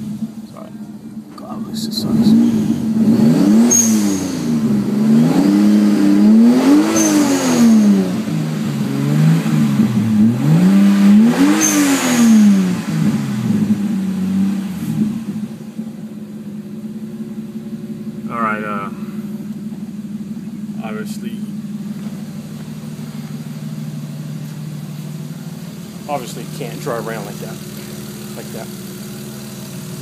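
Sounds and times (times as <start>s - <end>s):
car engine revving and idling: 0.0s - 30.0s.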